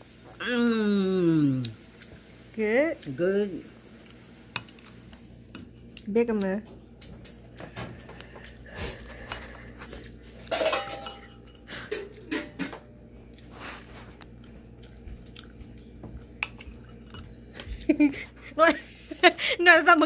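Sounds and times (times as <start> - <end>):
spoon clinking on ceramic bowl: 10.5 - 11.7.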